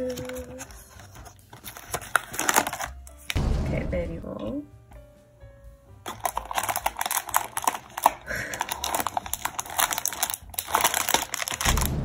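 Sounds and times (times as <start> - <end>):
packaging crinkling and rustling: 0.0 - 3.4, 6.0 - 12.0.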